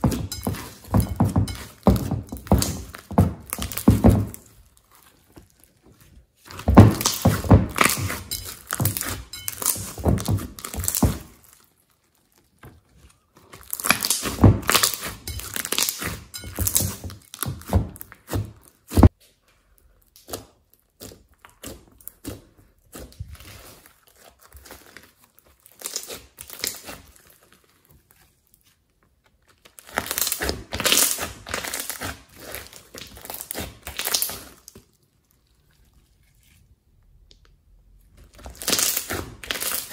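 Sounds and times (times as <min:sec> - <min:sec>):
slime crackling and popping: 0:13.4 - 0:19.2, 0:20.0 - 0:27.8, 0:29.4 - 0:35.7, 0:38.1 - 0:39.9.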